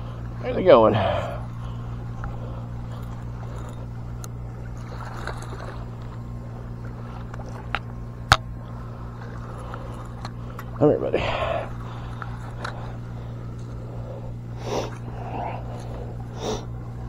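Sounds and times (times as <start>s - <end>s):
fishing reel whirring: 0.0s - 17.0s
reel clicks: 1.4s - 8.6s, 9.2s - 10.8s, 11.7s - 13.8s.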